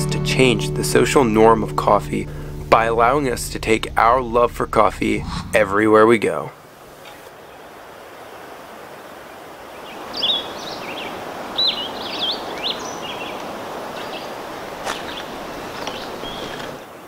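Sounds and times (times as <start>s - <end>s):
outdoor hiss: 5.0s - 17.0s
small birds chirping: 9.8s - 16.8s.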